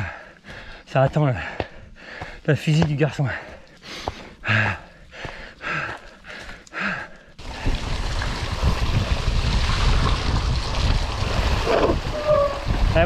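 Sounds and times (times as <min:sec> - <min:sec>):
bike tyres rolling on wet trail: 0:03.3 - 0:13.0
wind buffeting microphone: 0:07.4 - 0:13.0.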